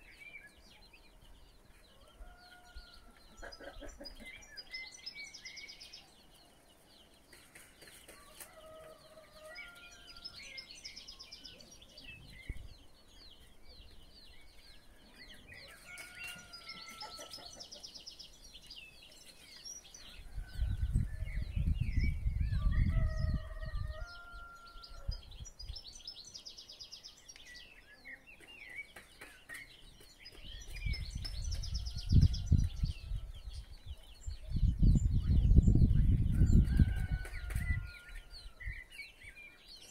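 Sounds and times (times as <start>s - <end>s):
small birds chirping: 0.0s - 39.9s
chickens clucking: 3.1s - 4.7s, 15.0s - 18.2s.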